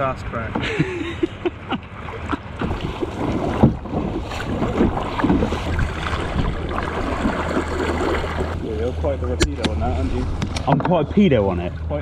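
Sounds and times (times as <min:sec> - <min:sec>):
water splashing around paddles: 0:01.7 - 0:11.8
wind rumbling on microphone: 0:02.6 - 0:10.8.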